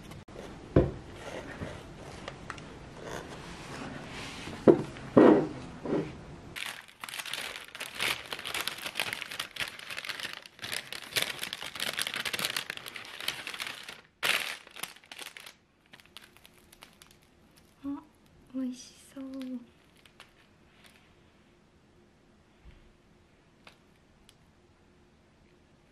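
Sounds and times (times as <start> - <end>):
crinkling and rustling: 6.6 - 21.1.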